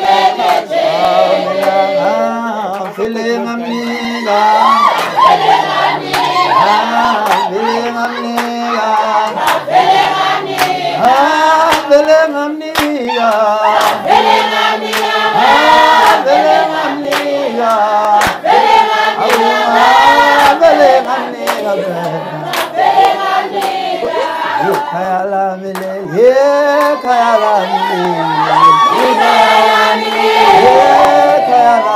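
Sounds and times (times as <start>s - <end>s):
crowd singing in chorus: 0.0s - 31.9s
handclaps: 0.4s - 0.7s, 1.6s - 1.8s, 2.6s - 4.0s, 4.9s - 7.6s, 8.2s - 16.3s, 17.0s - 24.9s, 25.7s - 26.0s, 26.8s - 27.1s.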